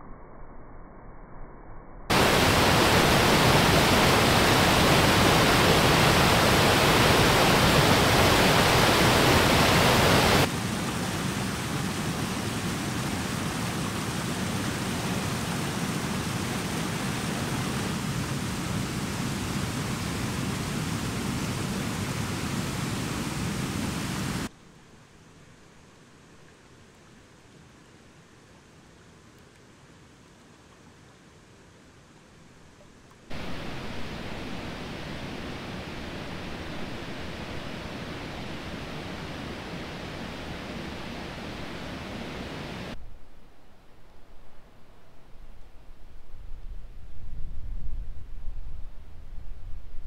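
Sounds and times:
water rushing over spillway: 2.1s - 24.5s, 33.3s - 43.0s.

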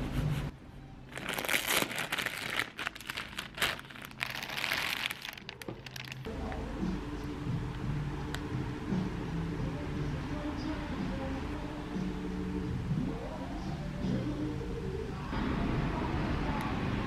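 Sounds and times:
background music: 0.0s - 17.0s
plastic bag crinkling: 1.1s - 6.3s.

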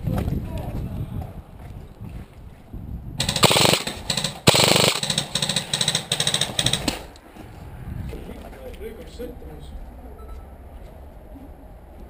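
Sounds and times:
airsoft rifle firing bursts: 3.2s - 7.1s.

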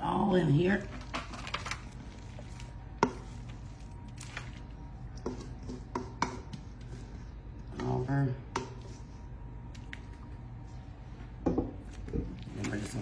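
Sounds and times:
wooden spoon scraping bowl: 1.2s - 8.0s.

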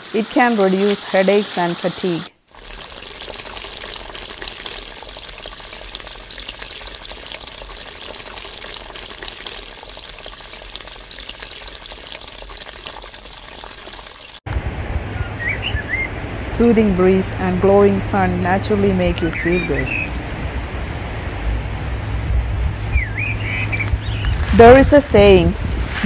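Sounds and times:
running water rushing: 0.0s - 14.4s.

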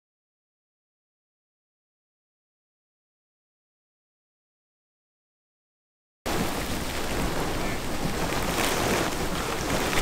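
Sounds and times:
heavy rain pouring: 6.3s - 10.0s.

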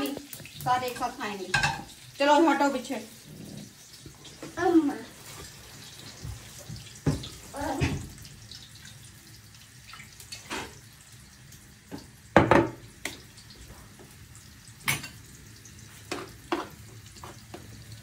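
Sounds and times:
food frying in a pan: 0.0s - 18.0s
utensil knocking against a pan: 12.4s - 12.8s.

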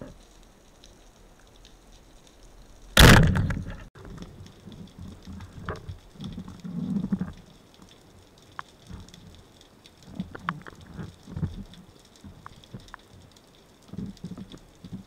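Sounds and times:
low uneven water noise: 0.0s - 15.0s
speargun firing crack: 3.0s - 3.8s.

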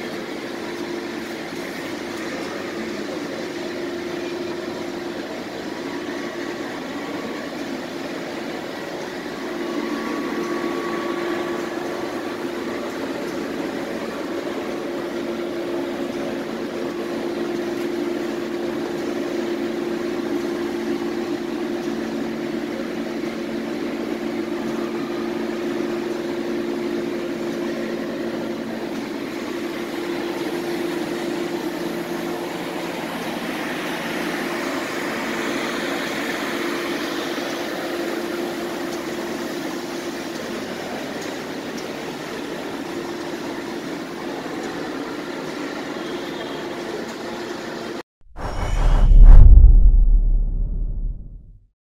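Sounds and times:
machinery hum: 0.0s - 36.0s, 48.4s - 51.6s.

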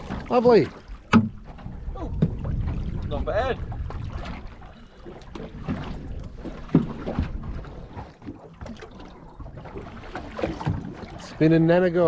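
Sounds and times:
wind buffeting microphone: 0.0s - 8.1s
water slapping against hull: 0.0s - 12.0s.

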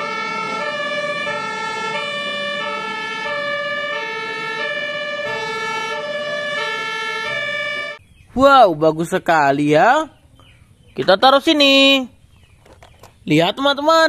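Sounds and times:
two-tone siren: 0.0s - 8.0s.

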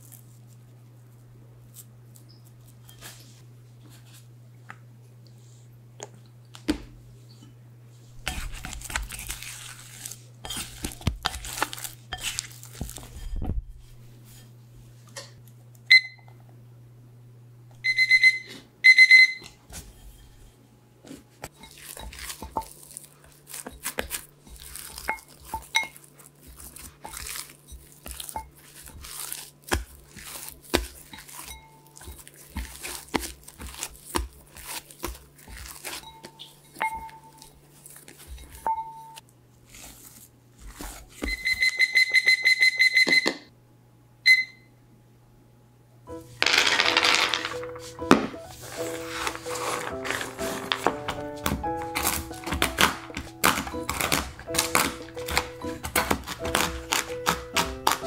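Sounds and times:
electronic timer beeps: 15.9s - 16.3s, 17.8s - 19.6s, 41.3s - 43.4s, 44.3s - 44.7s
dough squelching and tapping: 21.4s - 39.9s, 49.1s - 58.0s
cloth rustling: 47.4s - 54.6s.

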